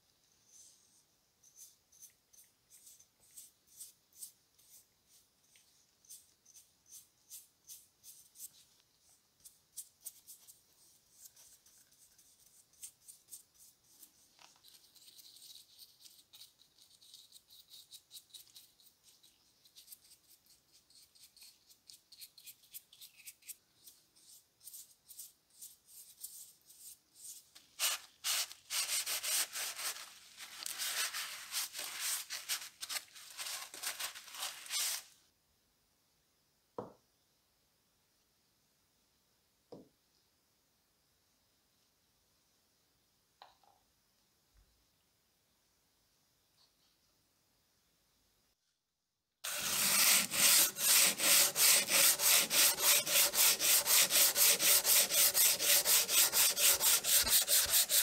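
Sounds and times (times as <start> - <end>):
cloth rubbing wood: 49.5 - 58.0.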